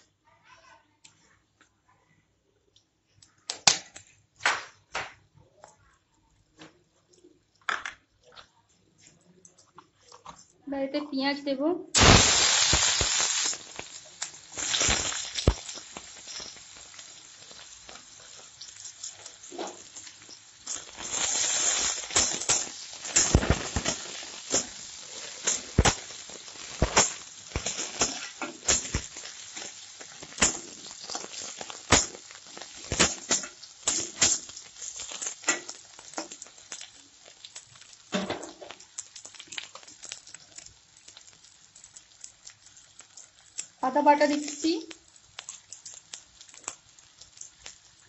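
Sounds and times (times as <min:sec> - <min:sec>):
onions sizzling in hot oil: 0:12.0 - 0:48.0.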